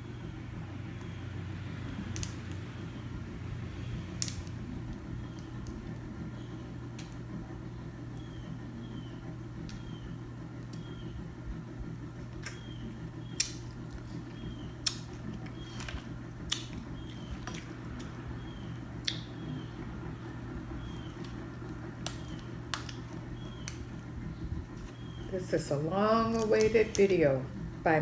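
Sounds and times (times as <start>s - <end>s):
low hum: 0.0s - 28.0s
crab shells cracking: 20.8s - 23.9s.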